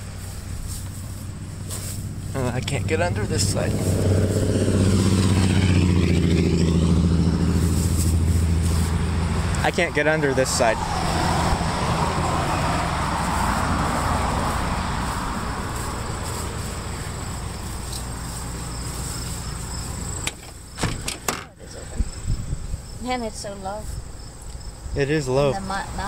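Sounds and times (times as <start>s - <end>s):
vehicle engine and tyres: 0.0s - 26.0s
high insect buzz: 10.8s - 26.0s
car door opening clunks: 20.2s - 21.6s.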